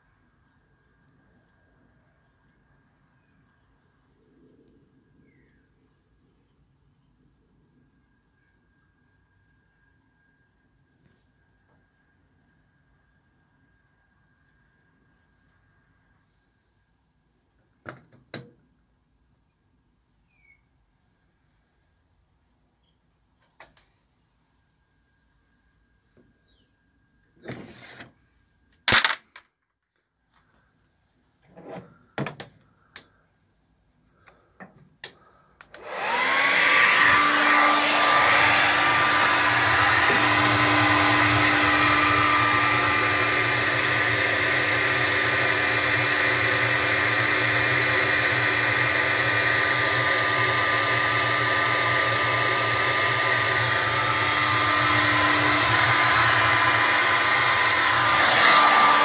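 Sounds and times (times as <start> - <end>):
hair dryer running: 35.7 - 59.0.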